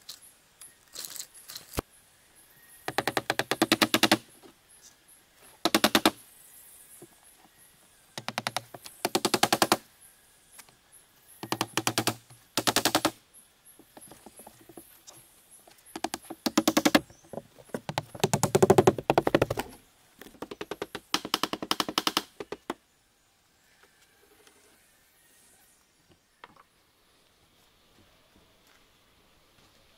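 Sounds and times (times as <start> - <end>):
hammer blows nailing wood: 16.0 - 17.0.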